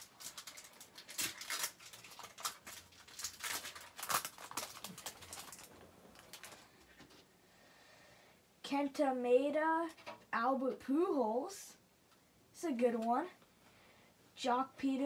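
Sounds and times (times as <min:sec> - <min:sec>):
foil wrapper crinkling and tearing: 0:00.0 - 0:06.7.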